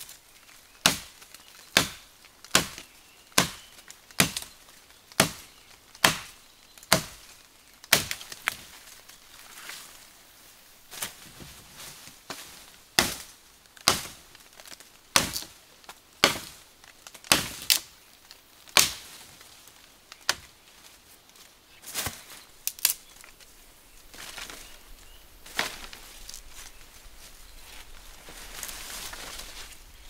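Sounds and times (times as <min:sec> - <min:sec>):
machete chopping wood: 0:00.8 - 0:01.1, 0:01.8 - 0:03.6, 0:05.2 - 0:05.4, 0:06.0 - 0:07.2, 0:07.9 - 0:08.2, 0:13.0 - 0:14.2, 0:15.2 - 0:15.5, 0:16.2 - 0:16.6, 0:17.3 - 0:17.8, 0:18.8 - 0:19.0.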